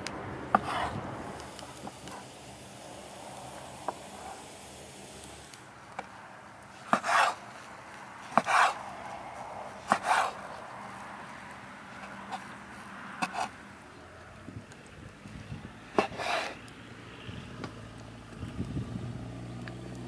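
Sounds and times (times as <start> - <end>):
knife chopping on wooden board: 0.5 - 1.0, 8.3 - 8.8, 9.9 - 10.4.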